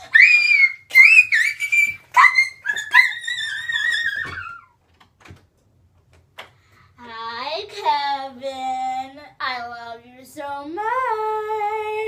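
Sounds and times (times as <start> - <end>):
girl screaming: 0.0 - 4.7.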